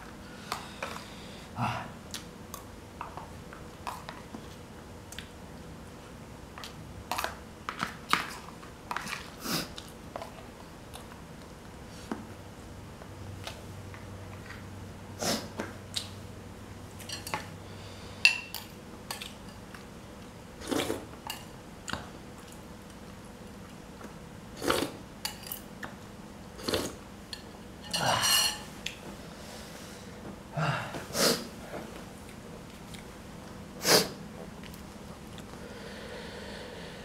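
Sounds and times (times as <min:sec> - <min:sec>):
dishes and spoon clinking: 0:17.0 - 0:17.5, 0:25.2 - 0:25.7, 0:27.3 - 0:28.8
chewing: 0:32.2 - 0:33.1.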